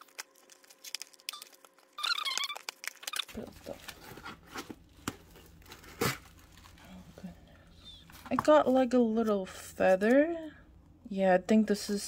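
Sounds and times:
cardboard tearing and rustling: 0.0 - 6.8
squeaky whine: 1.2 - 3.3.

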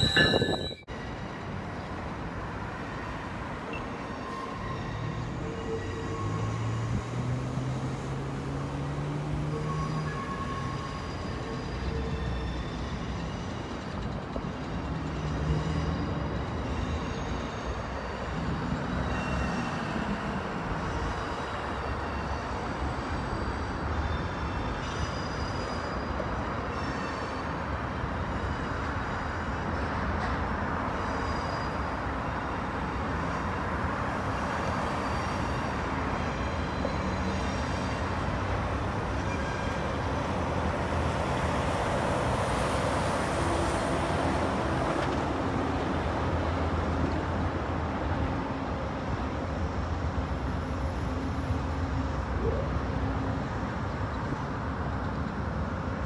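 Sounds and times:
short high squeaks: 0.0 - 0.9
train wheels rumbling on rail: 0.0 - 56.0.

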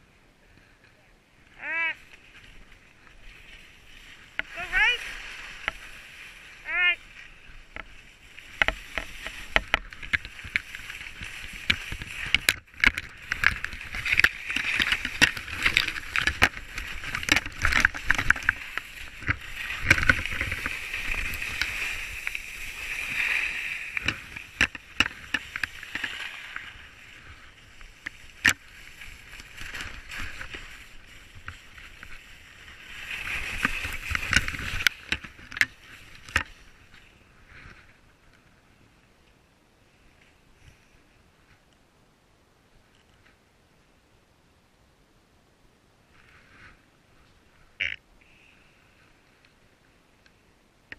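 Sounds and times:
skis scraping over snow: 1.4 - 39.0
sharp clicks and knocks: 8.5 - 22.4.

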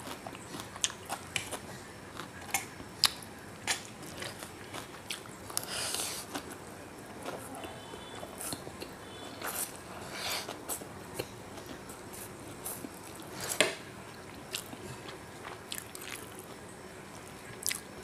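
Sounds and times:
chewing with wet mouth clicks: 0.0 - 6.6, 14.1 - 16.6, 17.2 - 17.9.

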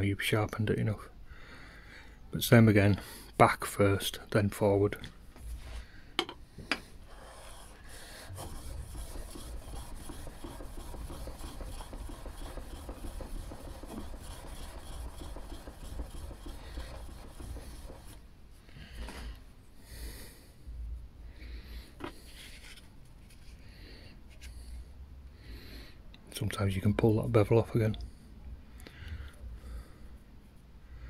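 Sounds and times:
chisel scraping on whetstone: 7.1 - 18.1.

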